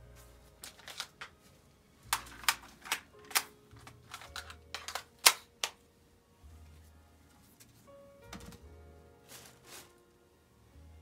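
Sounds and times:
handgun clicks and clacks: 2.1s - 5.8s.

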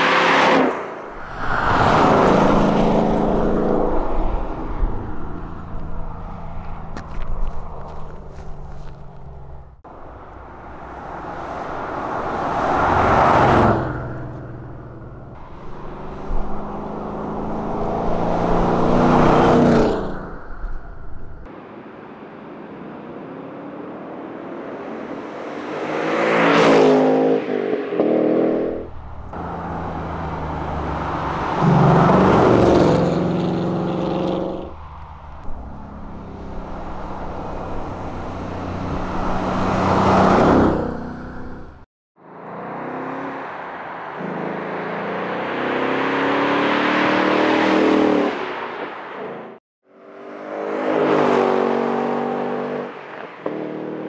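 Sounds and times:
car engine revving: 8.7s - 20.3s, 25.0s - 48.4s.

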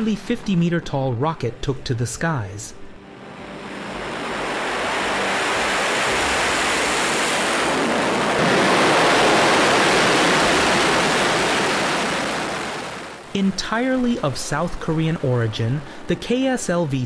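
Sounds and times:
rocket engine roar: 2.9s - 15.2s.

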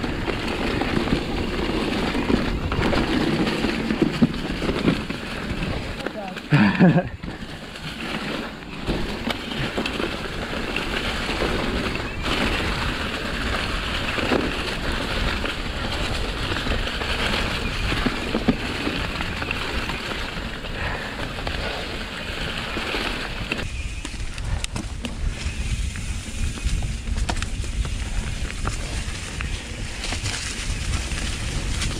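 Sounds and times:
bike rattling: 0.0s - 31.9s
bike tyres running through leaves: 0.0s - 31.9s
wind buffeting microphone: 6.6s - 31.9s.

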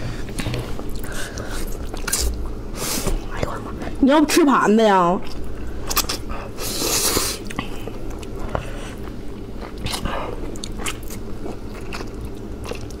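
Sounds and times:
wet chewing: 5.2s - 13.0s.

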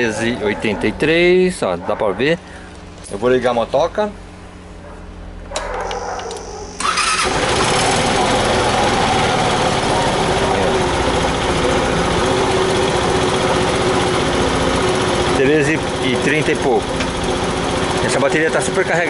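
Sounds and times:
scooter engine starting and idling: 5.6s - 19.0s.

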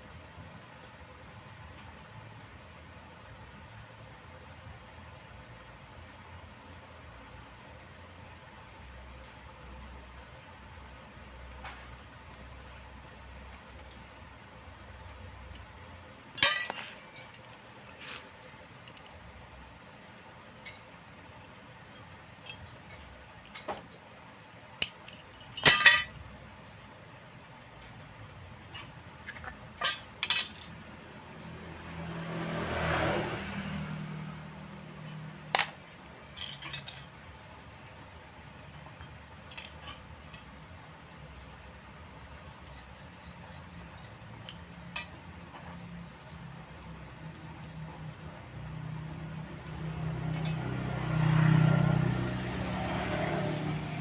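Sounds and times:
metal studs and nuts clinking: 16.3s - 17.5s, 21.9s - 24.2s, 24.8s - 26.2s, 28.6s - 30.8s, 35.5s - 37.3s, 49.4s - 50.6s.

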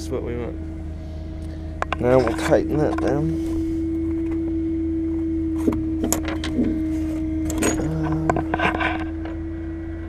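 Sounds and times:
constant whine: 0.0s - 10.0s
truck engine hum: 0.0s - 10.0s
metal clatter: 7.4s - 9.4s.

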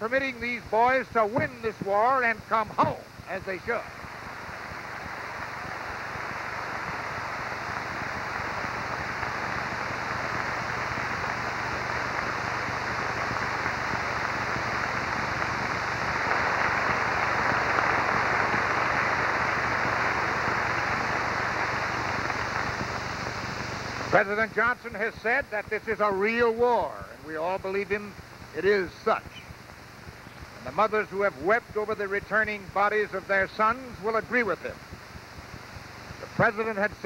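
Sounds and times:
audience applauding: 4.3s - 23.6s.

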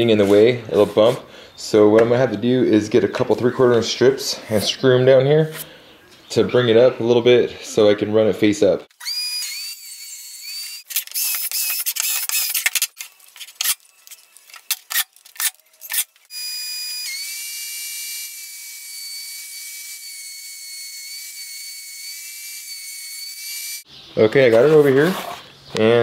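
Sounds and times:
table saw motor whining: 9.0s - 12.7s, 16.3s - 23.8s
impact driver driving screws: 10.4s - 12.9s.

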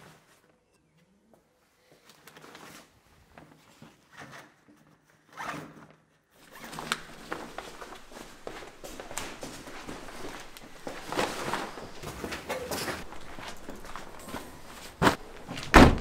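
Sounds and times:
fabric rustling: 6.4s - 16.0s.

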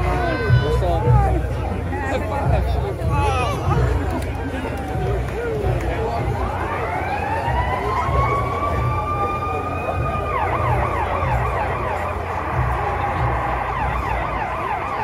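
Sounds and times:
emergency vehicle siren: 4.7s - 15.0s.

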